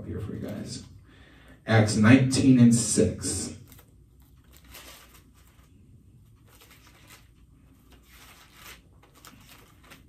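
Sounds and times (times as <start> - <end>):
paper pages rustling: 3.6 - 10.0.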